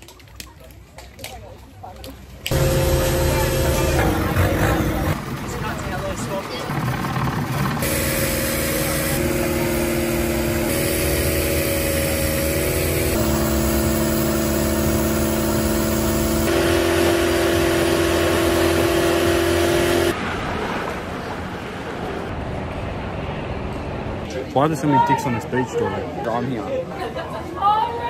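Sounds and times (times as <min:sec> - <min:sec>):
wind: 0:00.0 - 0:28.0
boat engine droning: 0:02.5 - 0:20.7.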